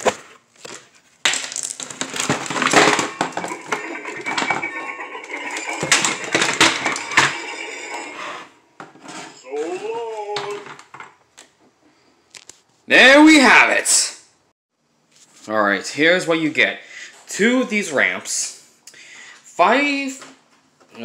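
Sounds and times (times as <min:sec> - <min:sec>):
cardboard packaging rustling: 0:00.0 - 0:04.5.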